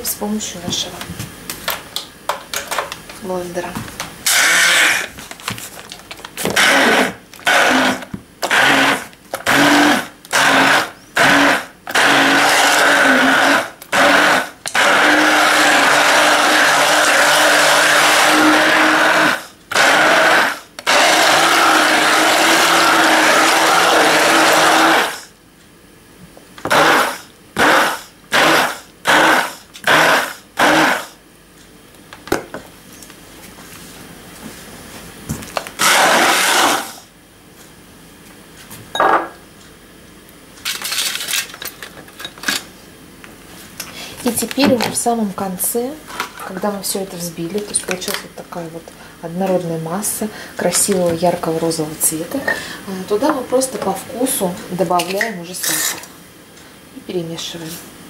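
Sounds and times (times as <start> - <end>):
stick blender motor pulsing: 4.2 - 5.1, 6.4 - 25.2, 35.8 - 37.0.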